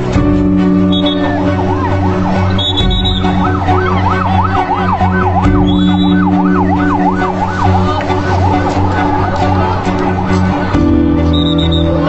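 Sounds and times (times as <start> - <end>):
siren yelping: 0.9 - 12.0.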